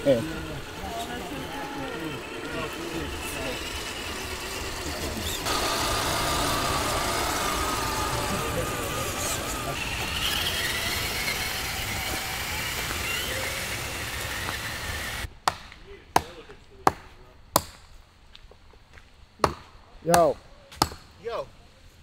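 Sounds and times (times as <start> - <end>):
noisy whir with whine: 0.0 - 15.3
blade chopping wood: 12.0 - 14.7.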